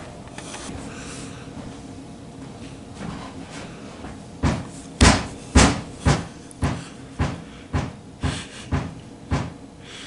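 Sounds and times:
heavy footsteps thudding: 4.0 - 9.6.

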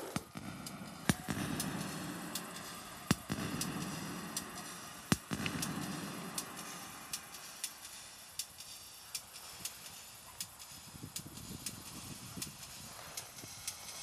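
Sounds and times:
low buzzing drone: 0.0 - 10.3
loud sharp synth clicks: 0.1 - 11.8
faint ticks: 6.4 - 14.0.

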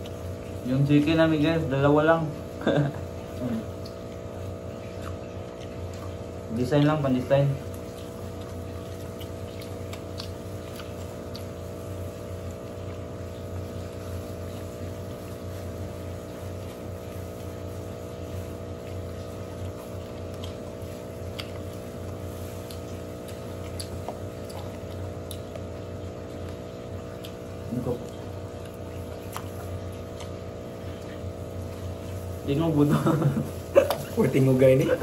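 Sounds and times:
low mechanical hum: 0.0 - 35.0
plastic gloves rustling: 11.7 - 24.9, 27.8 - 35.0.

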